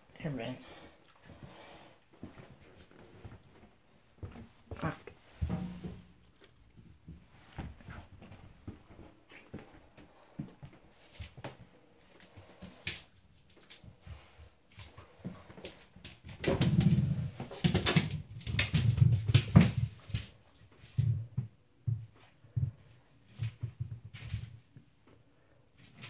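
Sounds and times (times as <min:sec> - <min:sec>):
puppy claws clicking on floor: 0:12.2 - 0:14.2, 0:14.8 - 0:20.4
puppy scrabbling and thumping: 0:14.9 - 0:24.6.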